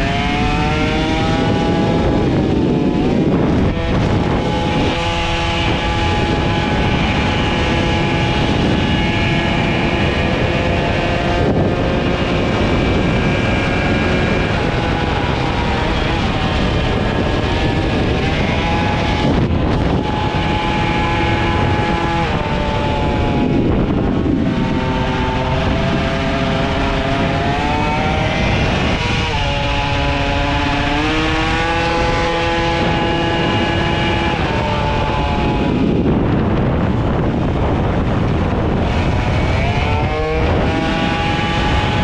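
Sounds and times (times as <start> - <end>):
moped engine at high revs: 0.0 - 42.0.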